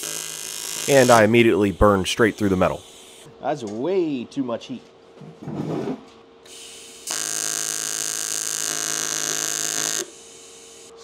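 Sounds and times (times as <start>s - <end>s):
welding arc buzzing and hissing: 0.0s - 3.3s, 6.5s - 11.0s.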